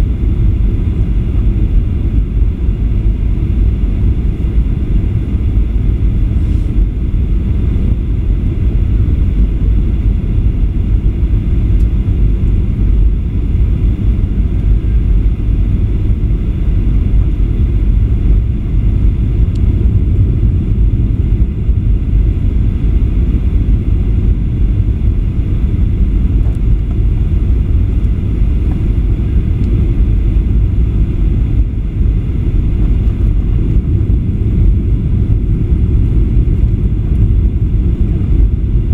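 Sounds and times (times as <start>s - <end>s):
airliner cabin engine rumble: 0.0s - 38.9s.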